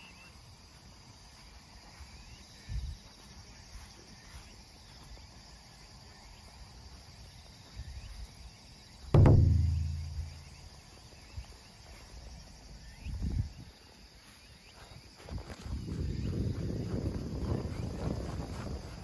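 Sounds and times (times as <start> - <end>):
crickets and insects chirring: 0.0 - 19.0
loud low boom: 9.2 - 10.6
soft low thumps: 9.2 - 10.9.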